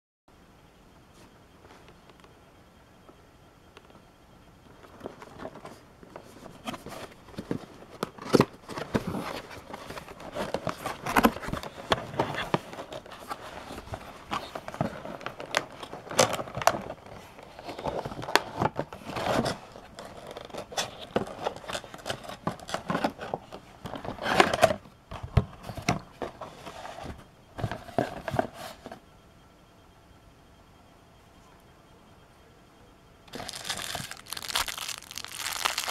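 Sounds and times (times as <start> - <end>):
packaging rustling and crinkling: 4.8 - 28.9, 33.3 - 35.9.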